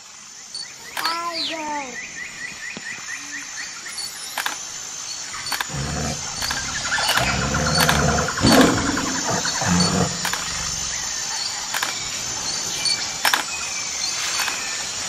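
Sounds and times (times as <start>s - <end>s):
sharp clicks: 0.9s - 1.2s, 3.9s - 4.7s, 5.3s - 12.2s, 12.8s - 13.6s, 14.2s - 14.8s
animal growls: 5.4s - 11.4s.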